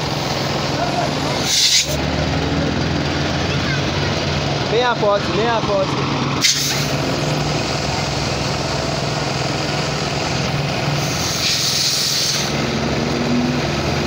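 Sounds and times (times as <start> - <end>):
small petrol engine running: 0.0 - 14.0
air hiss: 1.4 - 2.0, 6.4 - 6.9, 11.0 - 12.6.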